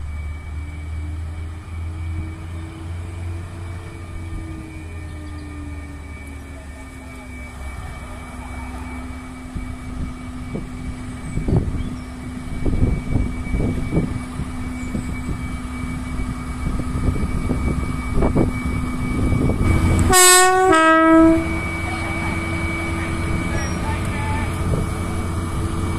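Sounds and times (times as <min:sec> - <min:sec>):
locomotive humming: 0:00.0 - 0:25.9
loud train horn: 0:19.4 - 0:24.7.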